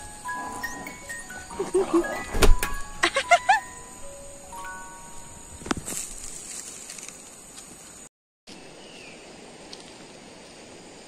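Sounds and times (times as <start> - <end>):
insects droning: 0.0 - 11.0
thump: 2.3 - 2.8.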